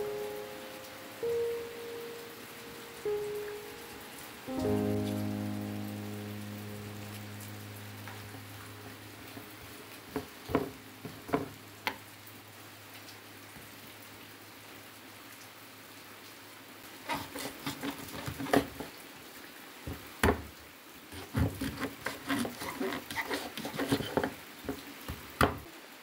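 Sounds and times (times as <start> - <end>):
soft hiss: 0.0 - 17.5
knife chopping on wooden board: 21.2 - 24.3.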